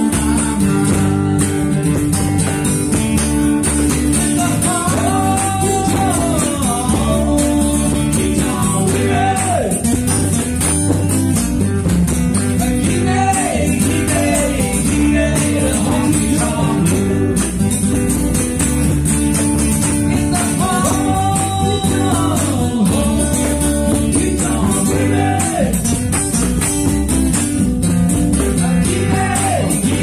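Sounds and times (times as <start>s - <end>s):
cajon beat: 0.0s - 30.0s
strummed acoustic guitars: 0.0s - 30.0s
man singing: 4.1s - 9.9s, 12.5s - 17.6s, 20.0s - 25.9s, 28.4s - 30.0s.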